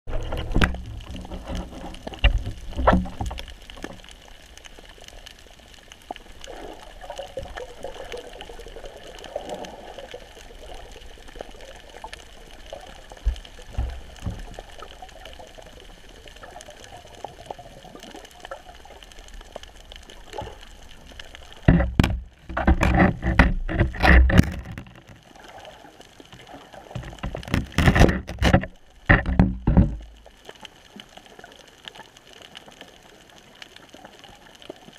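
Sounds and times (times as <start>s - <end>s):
muffled underwater hiss: 0.1s - 24.0s
loud irregular knocks: 21.6s - 25.1s, 27.0s - 30.1s.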